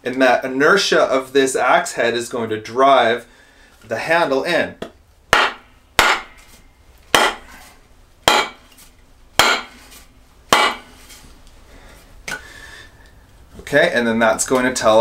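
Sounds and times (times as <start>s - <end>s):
mallet knocking wooden handle: 4.8s - 6.3s, 7.2s - 7.5s, 8.3s - 8.6s, 9.4s - 9.7s, 10.5s - 10.8s.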